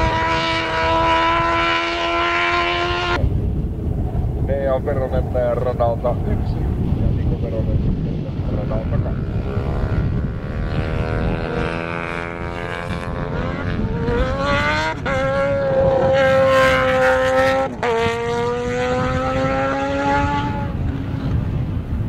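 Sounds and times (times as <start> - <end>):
drag racing engine accelerating: 0.0 - 3.2, 8.6 - 21.4.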